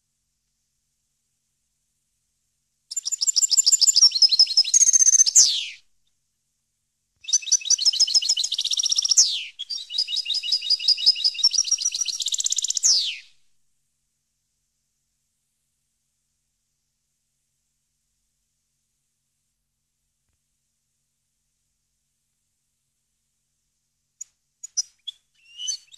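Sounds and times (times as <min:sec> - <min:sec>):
goldfinch singing: 0:07.2 - 0:13.2, 0:24.7 - 0:25.9.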